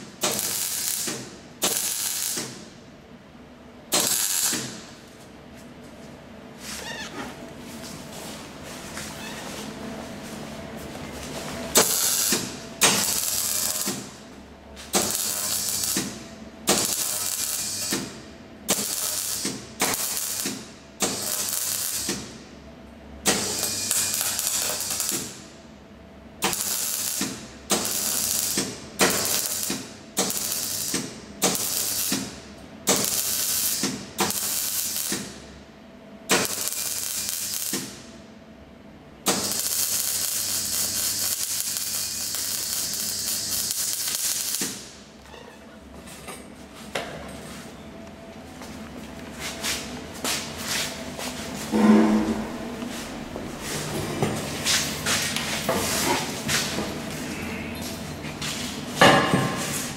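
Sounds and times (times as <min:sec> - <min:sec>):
welding arc crackling: 0:00.0 - 0:02.6, 0:03.9 - 0:04.8, 0:11.7 - 0:14.2, 0:14.9 - 0:22.3, 0:23.3 - 0:25.4, 0:26.4 - 0:35.4, 0:36.3 - 0:38.1, 0:39.3 - 0:45.0.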